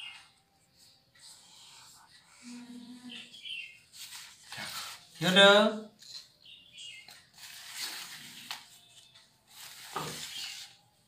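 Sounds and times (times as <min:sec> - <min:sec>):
paper rustling on table: 0:03.9 - 0:05.2, 0:07.0 - 0:11.0.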